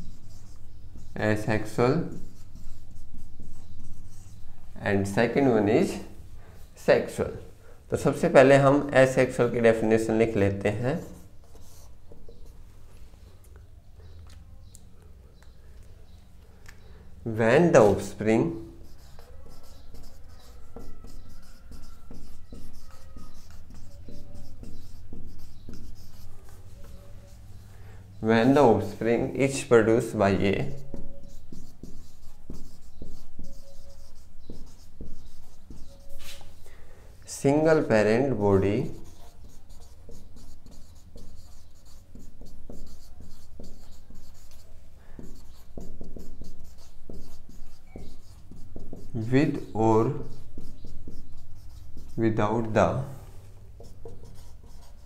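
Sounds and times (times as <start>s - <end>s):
marker squeaking on whiteboard: 0.0s - 7.2s, 8.0s - 12.6s, 13.2s - 16.4s, 17.5s - 55.0s.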